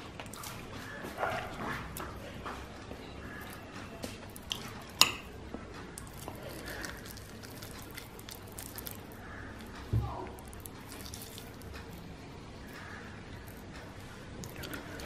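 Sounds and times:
rice squishing by hand: 5.9 - 15.0.

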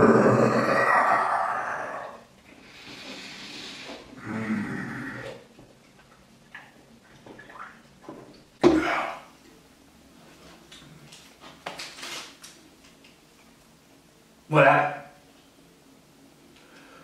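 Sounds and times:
person swallowing: 8.6 - 9.3.

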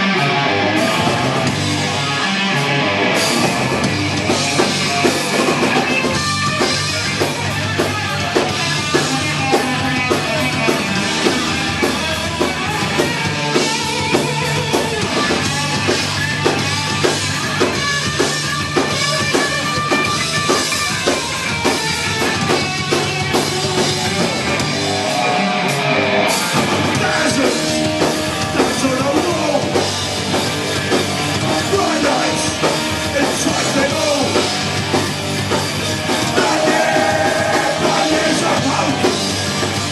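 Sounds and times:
distorted electric guitar: 0.0 - 39.9
fast drum kit: 0.1 - 39.9.

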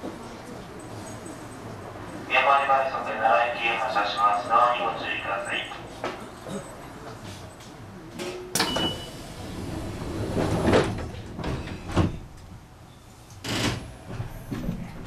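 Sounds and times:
train running gear rumble: 8.7 - 15.0.

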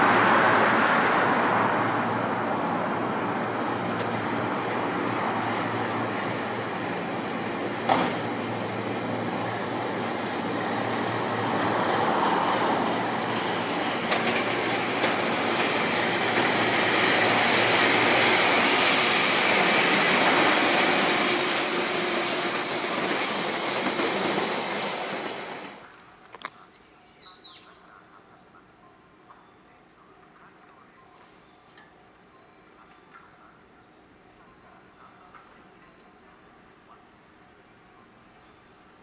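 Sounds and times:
train wheels rolling on rails: 3.7 - 26.4.

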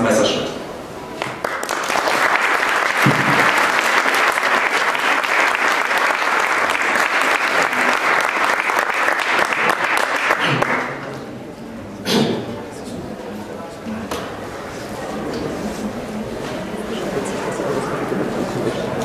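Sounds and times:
audience applauding: 1.2 - 11.1.

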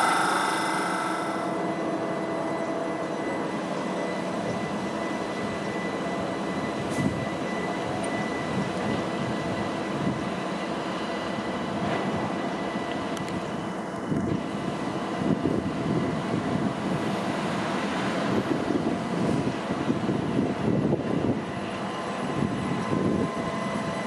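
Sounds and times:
high steady whine: 0.0 - 2.6
electric train hum: 0.0 - 24.0.

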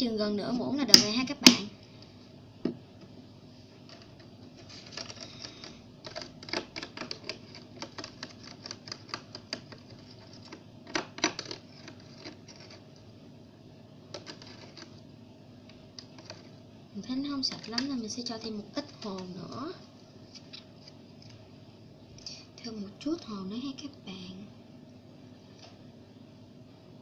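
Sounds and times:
metal spoon scraping plastic tray: 14.1 - 15.0.

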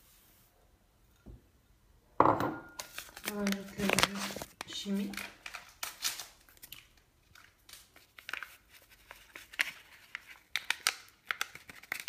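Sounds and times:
paper sachet crinkling: 2.8 - 12.0.

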